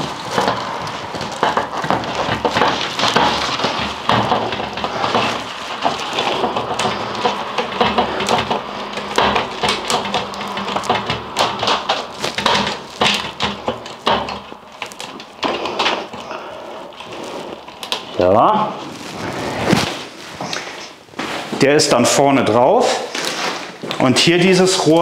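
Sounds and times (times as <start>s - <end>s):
clicks and knocks: 0.0s - 18.2s
corrugated hose rustling: 0.0s - 25.0s
plastic sheeting crinkling: 0.0s - 25.0s.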